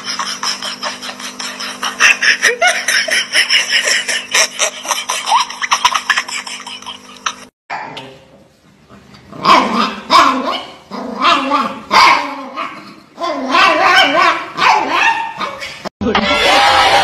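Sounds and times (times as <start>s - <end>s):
people laughing: 0.0s - 7.5s.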